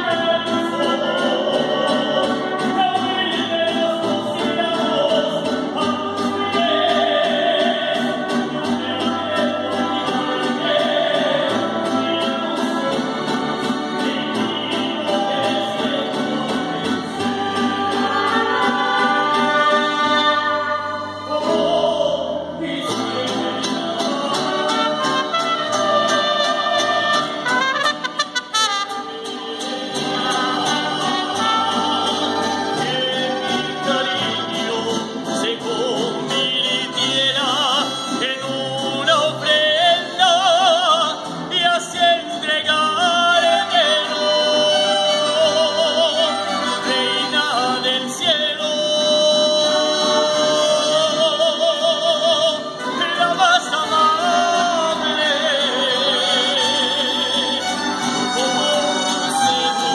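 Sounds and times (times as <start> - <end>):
man singing with vibrato: 0.0 - 59.9
strummed guitars: 0.0 - 59.9
bowed violins: 22.9 - 40.2, 49.5 - 59.9.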